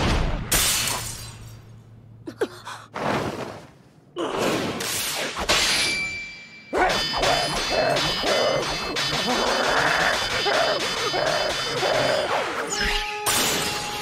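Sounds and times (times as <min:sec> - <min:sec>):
strained voice cry: 0:06.8 - 0:12.8.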